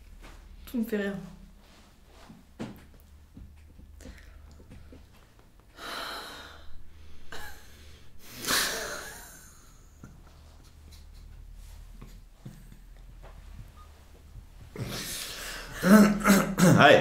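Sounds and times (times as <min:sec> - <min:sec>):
woman giggling breathily: 0:07.3 - 0:10.2.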